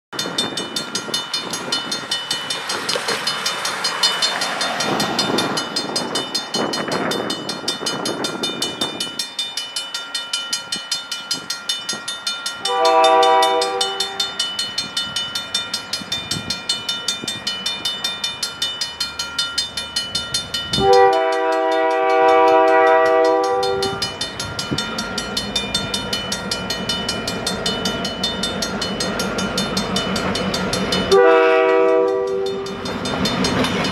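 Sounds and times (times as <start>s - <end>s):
crossing warning bell ringing: 0.1s - 33.9s
low locomotive engine hum: 0.2s - 33.9s
road vehicle crossing tracks: 0.2s - 33.9s
multi-note train horn: 12.6s - 14.4s, 20.8s - 24.1s, 31.1s - 32.8s.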